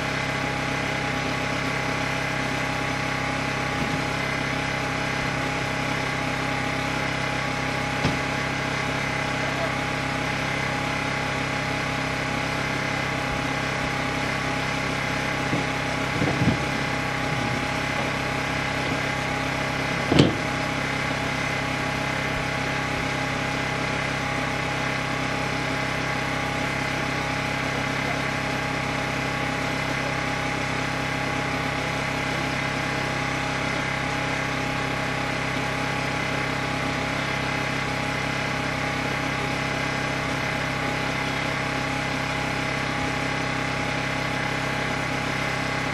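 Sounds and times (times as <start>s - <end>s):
portable generator droning: 0.0s - 45.9s.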